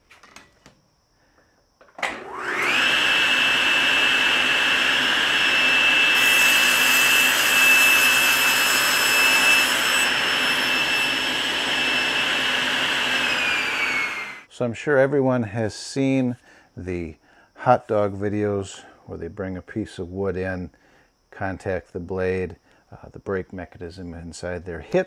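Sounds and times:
table saw whine: 0:02.0 - 0:14.5
saw blade cutting wood: 0:02.3 - 0:14.4.

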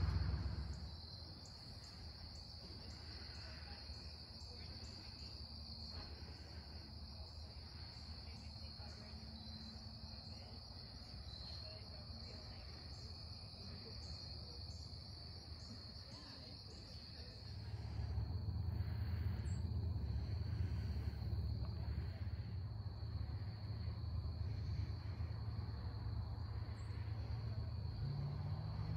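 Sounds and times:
low rumble: 0:00.0 - 0:02.0, 0:17.4 - 0:28.7
insect trill: 0:00.0 - 0:28.9.

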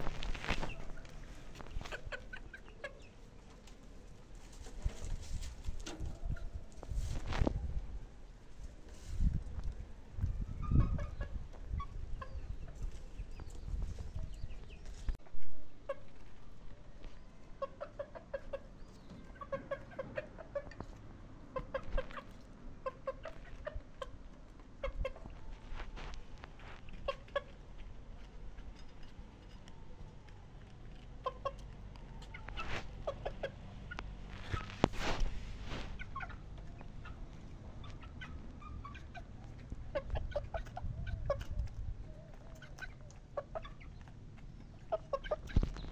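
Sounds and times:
brief rustling: 0:00.0 - 0:02.0, 0:34.3 - 0:36.2
chickens clucking: 0:00.0 - 0:45.9.

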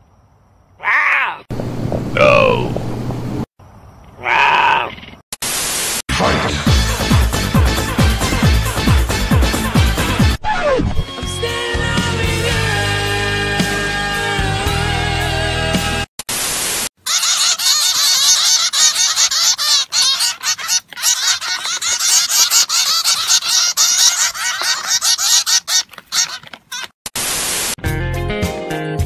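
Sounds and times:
music: 0:06.1 - 0:16.1, 0:27.8 - 0:29.0
finches chirping: 0:17.1 - 0:26.9.

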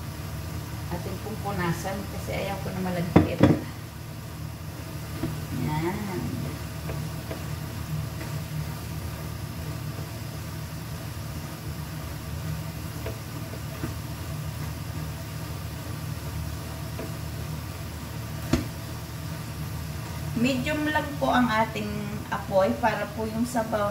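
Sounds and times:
minced beef cooking in pan: 0:00.0 - 0:23.9
stove humming: 0:00.0 - 0:23.9.

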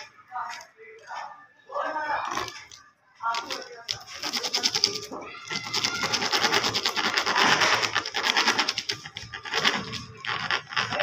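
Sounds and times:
hand tool clicking on stone tiles: 0:03.3 - 0:11.0.

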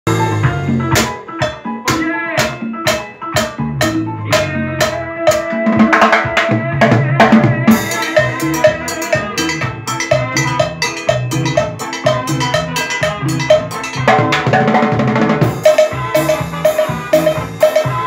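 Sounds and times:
recorded music with bass line: 0:00.0 - 0:18.0
cowbell struck with drumsticks: 0:07.7 - 0:14.8, 0:15.5 - 0:18.0.

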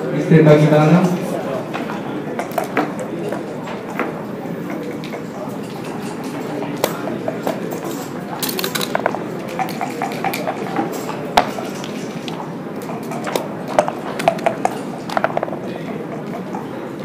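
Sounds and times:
checkers set down: 0:07.7 - 0:10.2.

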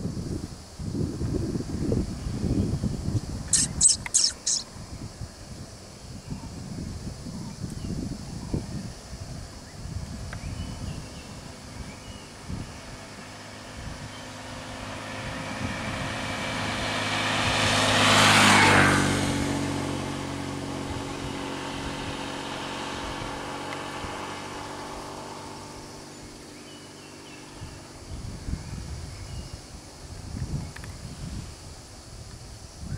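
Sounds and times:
vehicle passing by: 0:11.0 - 0:30.2.

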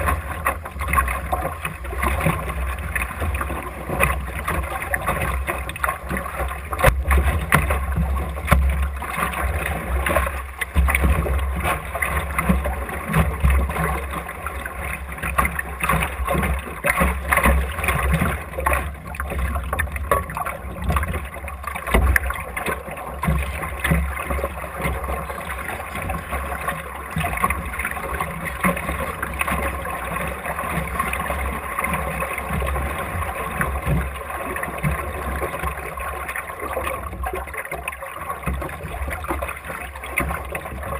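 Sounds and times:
water gurgling along hull: 0:00.0 - 0:40.9.

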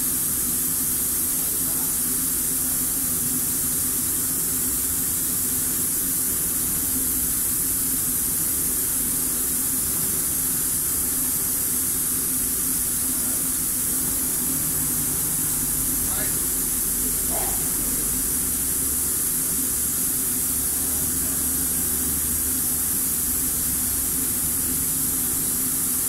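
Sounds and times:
steady hiss: 0:00.0 - 0:26.0.

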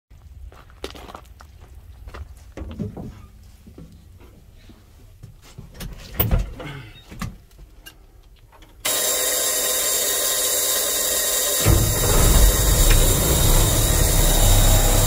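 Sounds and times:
diesel starter cranking: 0:08.8 - 0:15.0.

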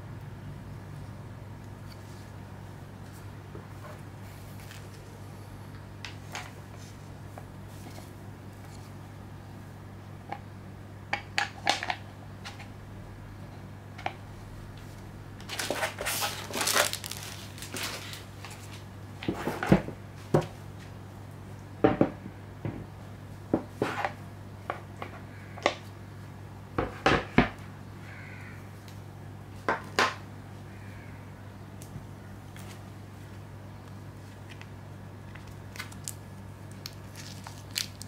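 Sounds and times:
steady low hum: 0:00.0 - 0:38.0
plastic rustling and crinkling: 0:15.4 - 0:20.4, 0:34.2 - 0:38.0.

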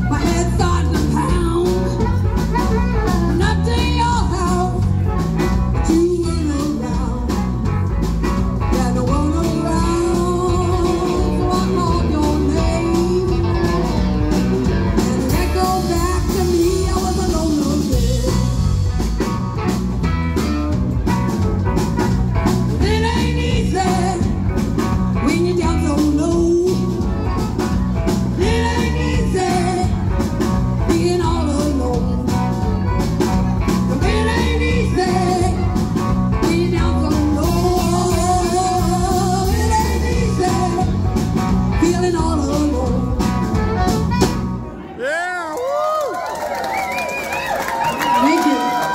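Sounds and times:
woman singing: 0:00.0 - 0:07.7, 0:08.6 - 0:18.9, 0:22.7 - 0:43.9
live blues band playing: 0:00.0 - 0:45.0, 0:45.7 - 0:48.9
amplified harmonica: 0:01.6 - 0:05.8.

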